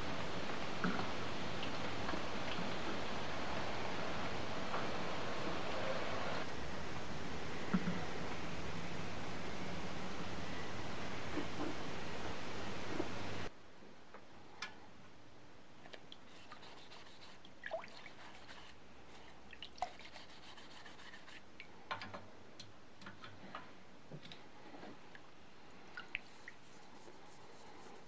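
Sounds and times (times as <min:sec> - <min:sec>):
loud steady hiss: 0:00.0 - 0:13.5
liquid dripping: 0:25.9 - 0:26.6.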